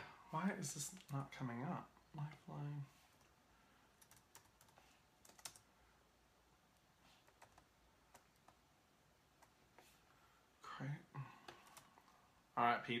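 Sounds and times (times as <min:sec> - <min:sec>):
faint typing clicks: 0:03.9 - 0:05.7, 0:07.2 - 0:08.6, 0:11.4 - 0:12.2.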